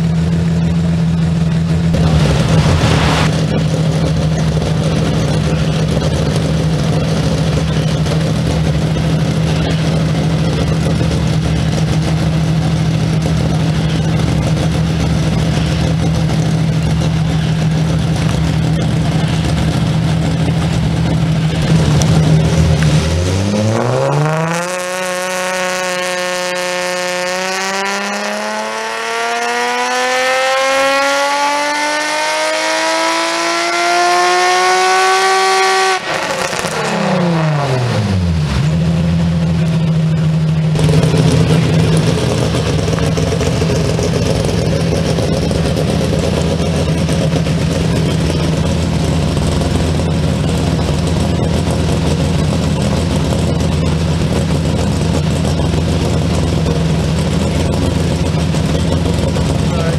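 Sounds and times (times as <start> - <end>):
car engine idling: 0.0 - 30.0, 36.0 - 59.9
car engine revving under load: 0.0 - 59.9.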